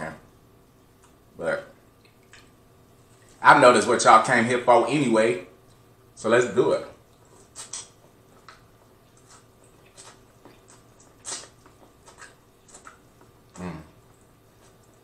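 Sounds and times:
person chewing corn on the cob: 7.0s - 15.0s.

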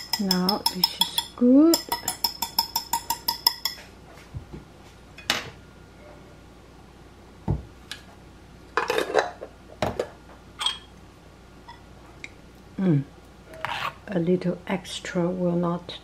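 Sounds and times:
kitchenware clinking on counter: 0.0s - 3.9s, 10.6s - 10.9s.

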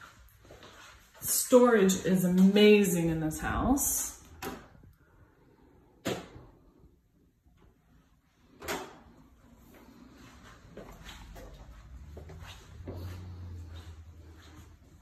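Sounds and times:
doors opening and shutting: 8.5s - 9.3s.

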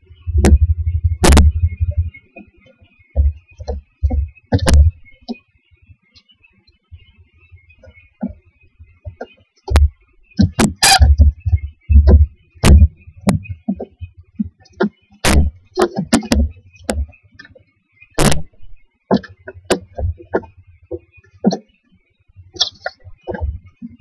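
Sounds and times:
knocks and thumps in nest box: 0.3s - 2.5s, 3.1s - 5.4s, 7.8s - 17.5s, 18.2s - 21.7s, 22.6s - 24.0s.

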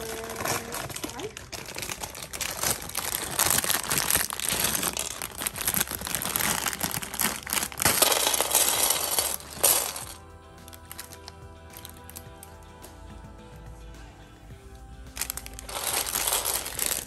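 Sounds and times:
plastic bricks clicking: 0.0s - 10.2s, 15.2s - 17.0s
plastic bag crinkling: 0.0s - 12.2s, 15.2s - 17.0s
quiet background music: 0.0s - 17.0s.

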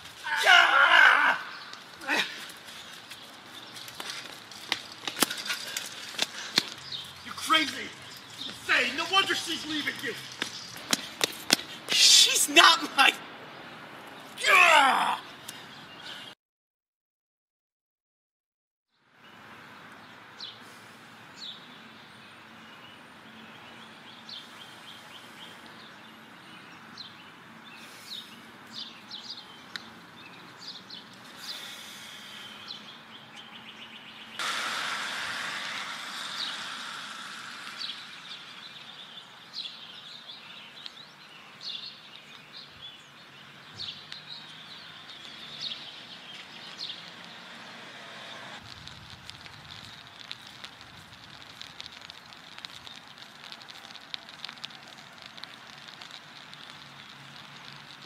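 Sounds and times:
birds chirping: 0.0s - 16.4s, 19.2s - 48.0s, 51.4s - 58.0s
rush of noise: 34.4s - 39.2s.

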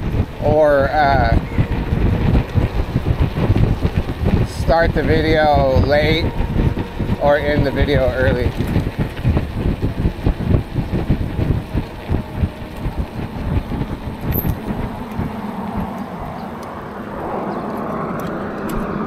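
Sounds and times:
steady rushing noise: 0.0s - 19.0s
wind buffeting microphone: 0.0s - 19.0s.

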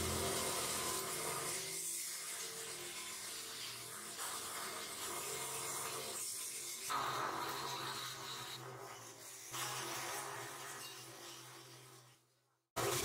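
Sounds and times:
machinery hissing: 0.0s - 1.2s.

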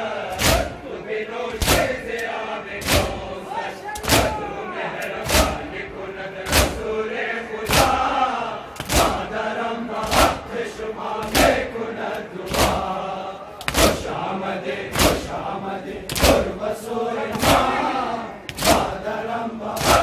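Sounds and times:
men chanting in unison: 0.0s - 20.0s
chest-beating slaps: 0.4s - 0.8s, 1.5s - 3.2s, 4.0s - 4.4s, 5.0s - 5.7s, 6.5s - 6.9s, 7.7s - 8.1s, 8.7s - 9.3s, 10.0s - 10.5s, 13.6s - 14.0s, 15.0s - 15.3s, 16.1s - 16.5s.

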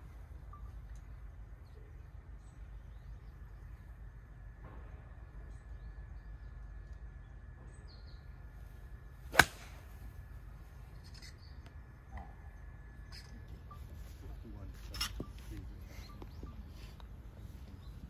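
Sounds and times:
low outdoor rumble: 0.0s - 18.0s
golf club striking ball: 9.3s - 9.9s.

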